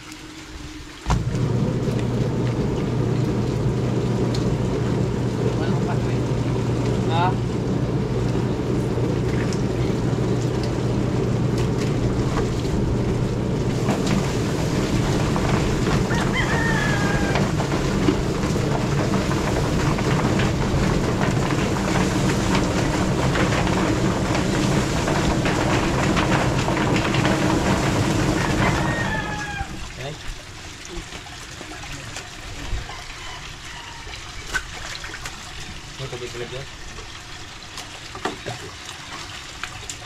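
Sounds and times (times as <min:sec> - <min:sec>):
machine humming: 0:00.0 - 0:30.0.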